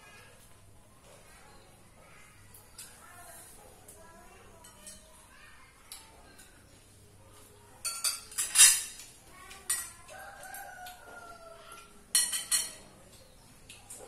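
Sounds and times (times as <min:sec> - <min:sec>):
spoons clinking on ceramic plates: 0:07.8 - 0:11.0, 0:11.7 - 0:13.2
rooster crowing: 0:10.1 - 0:11.8.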